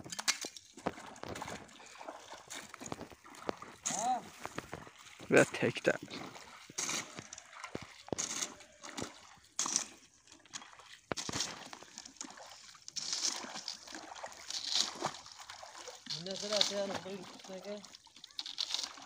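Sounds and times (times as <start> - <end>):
boots splashing through water: 0.0 - 19.0.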